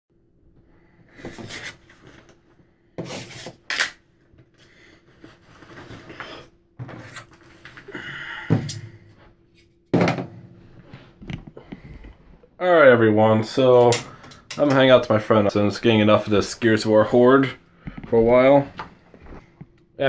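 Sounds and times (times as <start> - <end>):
objects knocking on a desk: 9.9 - 10.4.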